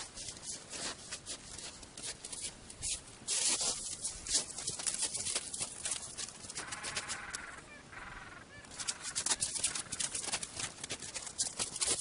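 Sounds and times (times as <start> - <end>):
footsteps crunching on snow: 0.0 - 7.6, 8.7 - 12.0.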